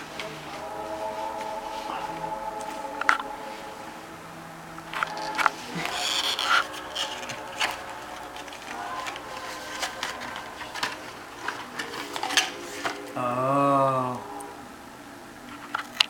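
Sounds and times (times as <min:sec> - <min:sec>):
paper crinkling and rustling: 0:04.8 - 0:13.2.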